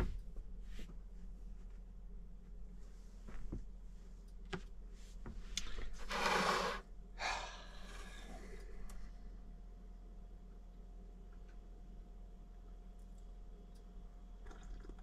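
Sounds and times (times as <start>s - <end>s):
breathy rushes: 6.1s - 8.8s.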